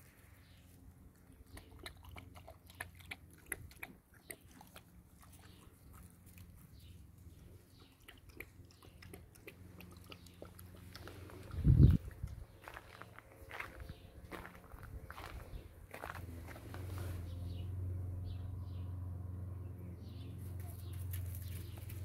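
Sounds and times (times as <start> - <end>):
puppy chewing: 1.1 - 12.4.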